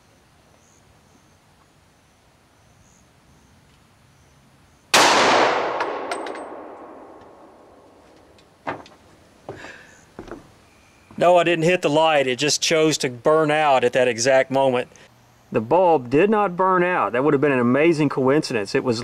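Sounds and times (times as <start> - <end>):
pistol shot echoing: 4.9 - 8.0.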